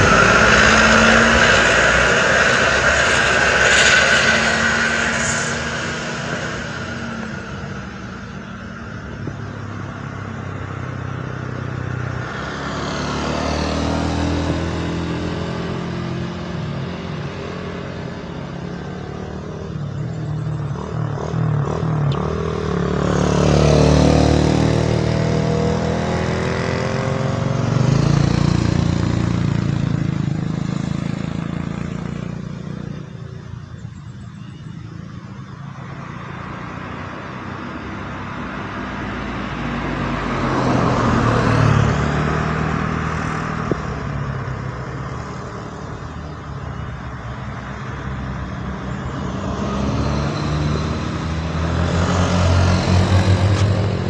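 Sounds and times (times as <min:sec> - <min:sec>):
motorcycles passing: 0:00.0 - 0:54.0.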